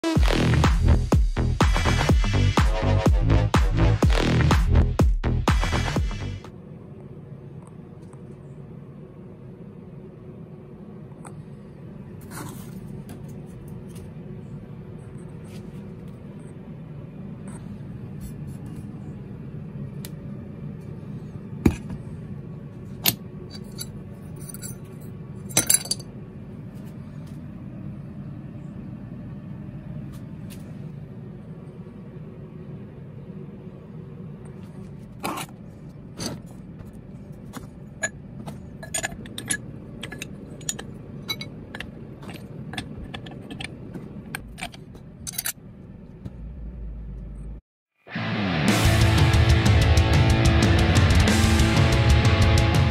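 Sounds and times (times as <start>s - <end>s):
steady low hum: 0.0s - 47.6s
metal ingots clinking: 38.8s - 43.7s.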